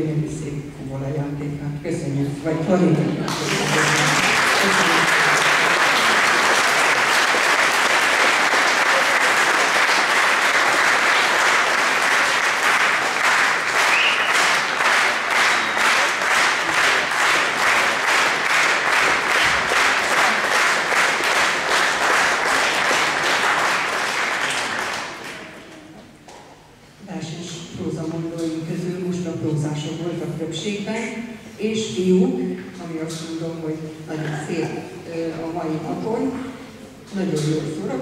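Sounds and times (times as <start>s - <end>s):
audience applause: 3.3s - 25.7s
rhythmic clapping in unison: 3.3s - 25.8s.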